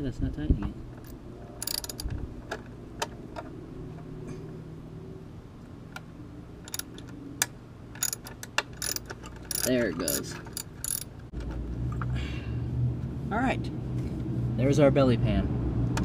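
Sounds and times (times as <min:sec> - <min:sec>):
socket ratchet clicking: 0:01.0 - 0:02.7, 0:06.6 - 0:07.2, 0:07.9 - 0:11.2.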